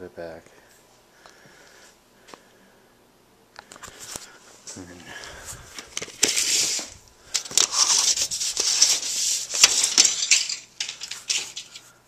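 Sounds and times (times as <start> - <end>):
sharp clicks and scrapes: 5.8 - 11.9.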